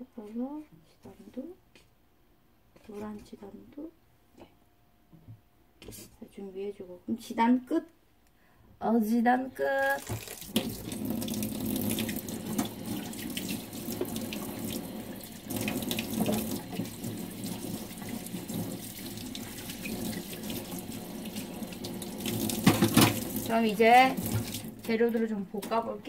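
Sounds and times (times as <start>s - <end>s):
tap running into sink: 10.0s - 14.8s, 15.5s - 23.5s, 24.2s - 24.8s.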